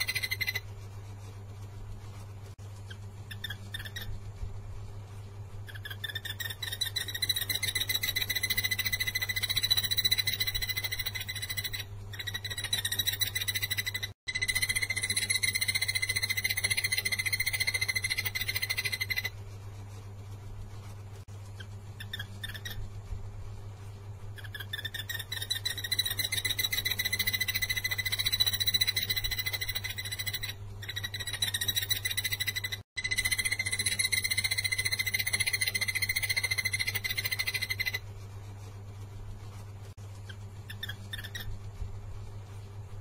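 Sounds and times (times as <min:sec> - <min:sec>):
bird calling rapid notes: 0:00.0 - 0:00.6, 0:02.8 - 0:04.2, 0:05.7 - 0:19.3, 0:21.6 - 0:22.9, 0:24.4 - 0:38.0, 0:40.3 - 0:41.6
steady low hum: 0:00.0 - 0:43.0.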